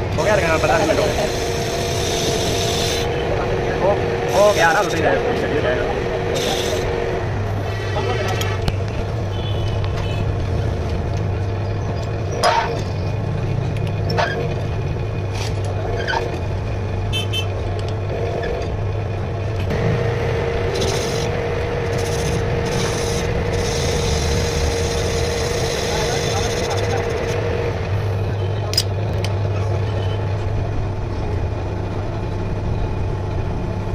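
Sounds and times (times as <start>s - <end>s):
metal lathe humming: 0.0s - 8.7s, 19.5s - 27.9s
lathe tool cutting metal: 0.1s - 3.6s, 4.2s - 8.6s, 19.7s - 27.6s.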